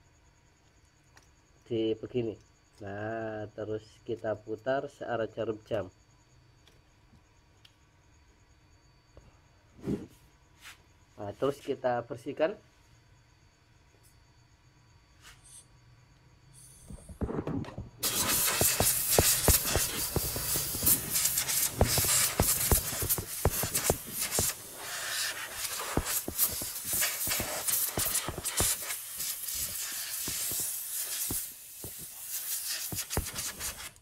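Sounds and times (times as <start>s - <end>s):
aerosol spray can hissing: 18.0s - 34.0s
sharp crackles: 18.0s - 34.0s.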